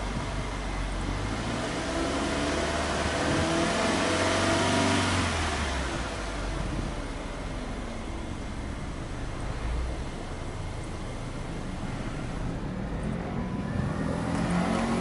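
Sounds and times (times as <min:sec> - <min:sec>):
car engine revving: 0:00.0 - 0:15.0.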